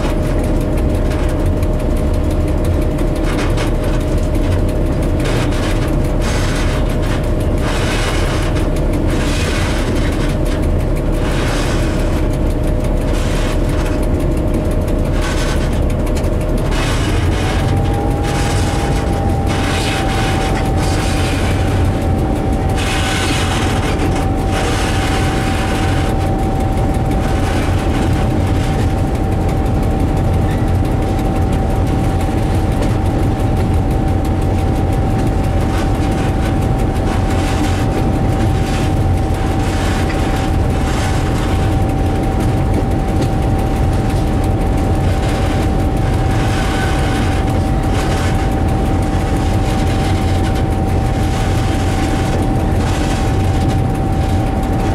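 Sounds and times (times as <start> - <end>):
high-pitched whine: 0.0 - 54.9
locomotive engine drone: 0.0 - 54.9
rail clatter: 0.0 - 54.9.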